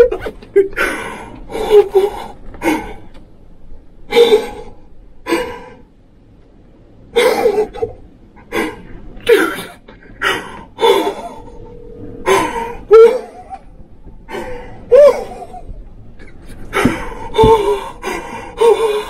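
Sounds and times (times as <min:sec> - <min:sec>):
man breathing heavily: 0:16.4 - 0:19.0.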